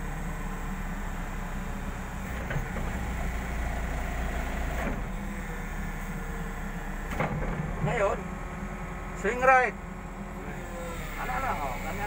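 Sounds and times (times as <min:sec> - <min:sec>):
excavator diesel engine droning: 0:00.0 - 0:12.0.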